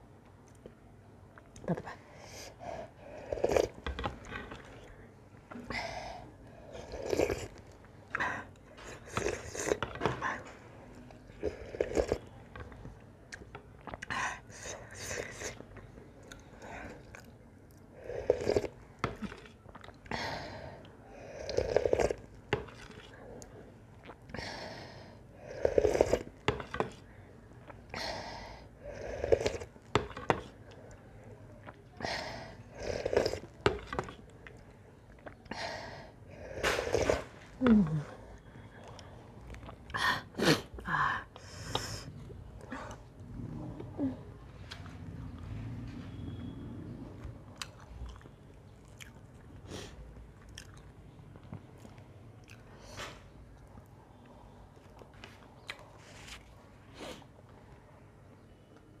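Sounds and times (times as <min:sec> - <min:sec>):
chewing: 0:15.2 - 0:20.1, 0:21.5 - 0:24.3, 0:29.3 - 0:32.0, 0:38.4 - 0:40.0, 0:47.2 - 0:56.6.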